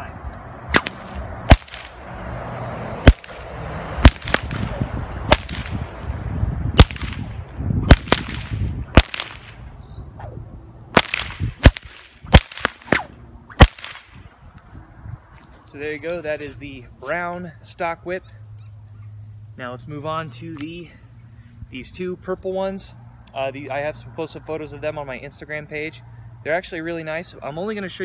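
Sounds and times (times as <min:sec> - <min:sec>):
whip cracking: 0:00.7 - 0:02.0, 0:03.0 - 0:05.8, 0:06.8 - 0:09.6, 0:10.2 - 0:14.2.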